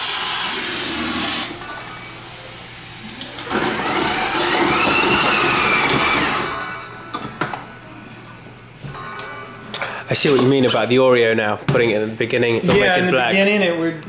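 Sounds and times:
liquid nitrogen hissing: 0.0s - 6.8s
mixer motor running: 3.3s - 6.8s.

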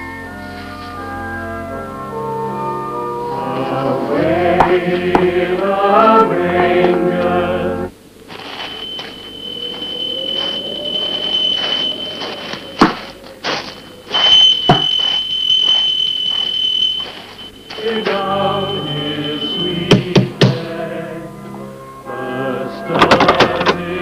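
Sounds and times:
organ music: 0.0s - 24.0s
steady hiss: 2.5s - 22.9s
high-pitched whine: 7.4s - 21.4s.

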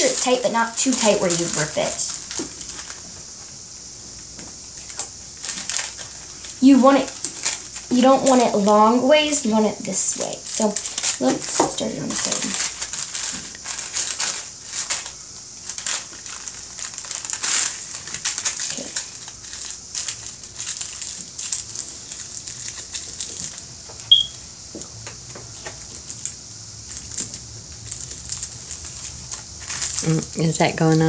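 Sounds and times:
paper crinkling and rustling: 0.0s - 3.4s, 4.4s - 8.8s, 10.2s - 24.1s, 25.4s - 31.0s
short high squeak: 24.1s - 24.4s.

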